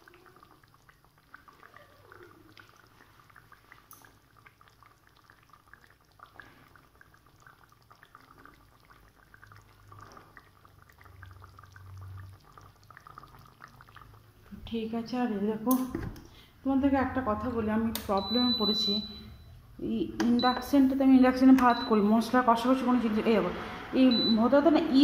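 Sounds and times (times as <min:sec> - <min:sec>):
curry bubbling and popping: 0:00.0 - 0:22.4.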